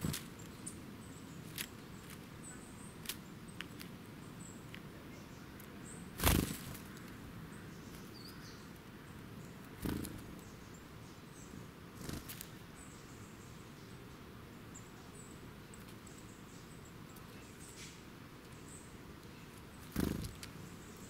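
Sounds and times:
bird wings fluttering: 6.2s - 7.0s, 9.8s - 10.3s, 12.0s - 12.6s, 19.8s - 20.5s.

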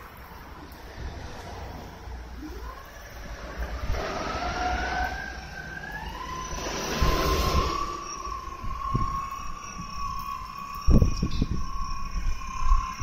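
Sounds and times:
wheels rolling on concrete: 0.0s - 13.0s
electric drive motor whining: 2.4s - 13.0s.

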